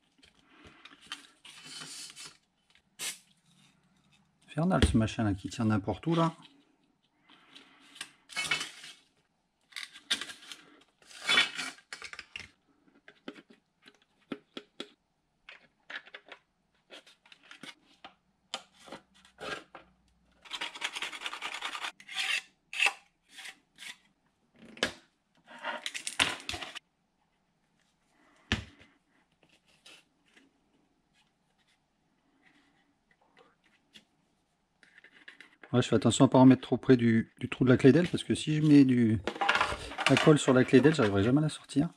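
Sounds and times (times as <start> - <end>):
plastic parts scraping and rustling: 6.0 - 22.4, 25.4 - 26.8, 34.8 - 35.7, 37.7 - 41.9.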